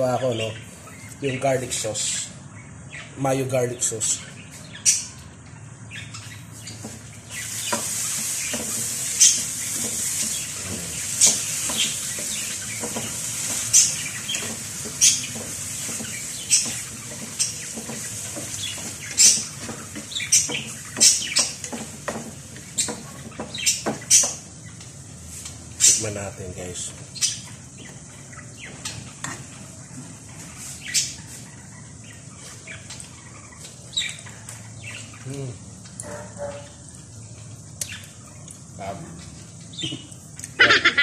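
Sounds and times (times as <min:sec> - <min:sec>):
food sizzling in a frying pan: 0:06.6 - 0:33.4
spatula tapping and scraping pan: 0:07.7 - 0:10.4, 0:11.2 - 0:24.4.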